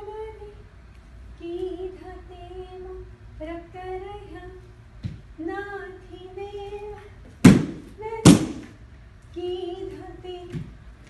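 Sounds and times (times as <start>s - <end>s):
woman singing: 1.4s - 4.7s, 5.4s - 7.2s, 7.9s - 8.7s, 9.3s - 10.8s.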